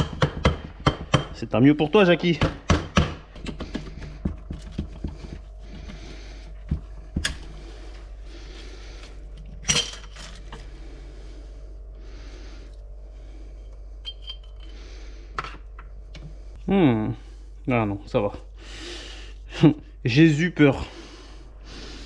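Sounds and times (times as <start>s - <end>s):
metal parts clinking: 9.6s - 10.6s, 14.0s - 14.8s.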